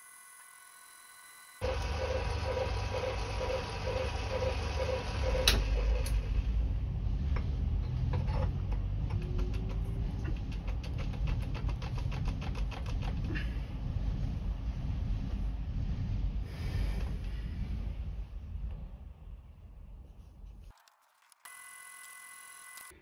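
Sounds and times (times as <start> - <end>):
low machine hum: 0.0 - 20.7
sharp clicks: 8.7 - 13.3.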